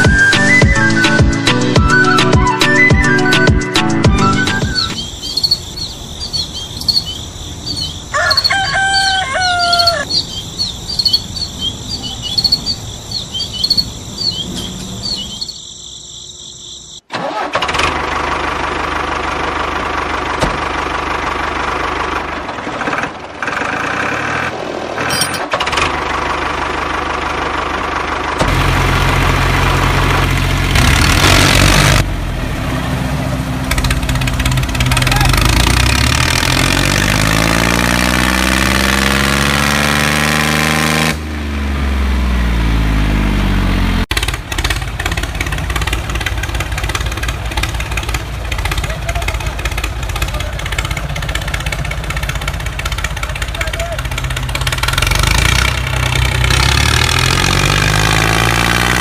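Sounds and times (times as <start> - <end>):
birds chirping: 0.0 - 17.1.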